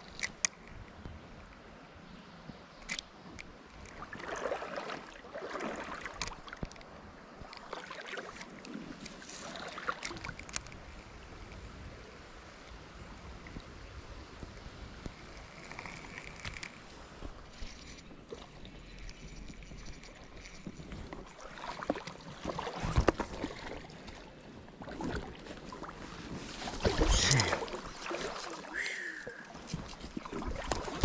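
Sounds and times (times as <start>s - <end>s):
creek water babbling: 3.1s - 31.0s
splashy rustles: 24.8s - 28.8s.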